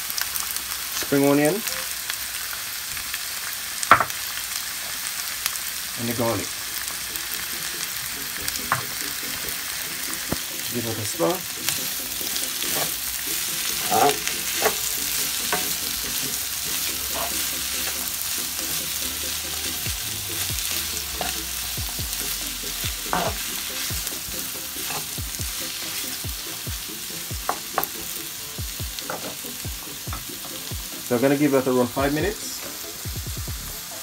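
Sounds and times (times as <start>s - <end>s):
vegetables sizzling in a frying pan: 0.0s - 34.0s
wooden spoon scraping a pan: 10.8s - 18.1s, 23.1s - 23.5s, 24.8s - 25.2s.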